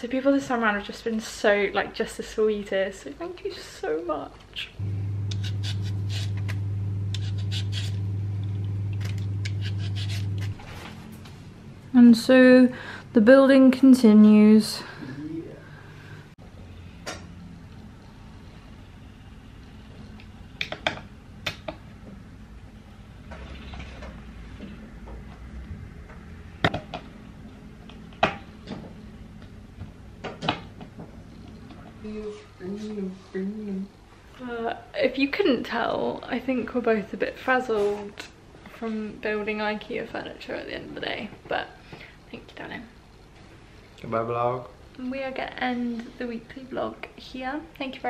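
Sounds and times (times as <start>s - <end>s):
steady low hum: 4.8s - 13.2s
peeler scraping potato skin: 5.3s - 8.1s, 9.0s - 10.6s.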